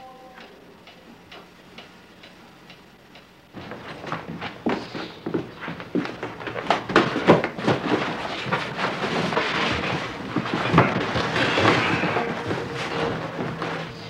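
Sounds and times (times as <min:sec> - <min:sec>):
steady hum: 0:00.0 - 0:14.0
cardboard boxes knocking: 0:03.6 - 0:14.0
cardboard scraping and rustling: 0:03.6 - 0:14.0.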